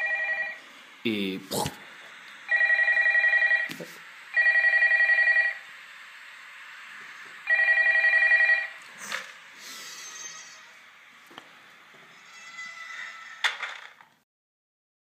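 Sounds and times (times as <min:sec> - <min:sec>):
telephone warbling ring: 0:00.0 - 0:00.6, 0:02.5 - 0:03.7, 0:04.4 - 0:05.6, 0:07.5 - 0:08.7
steady hiss: 0:05.6 - 0:07.5, 0:08.7 - 0:12.3.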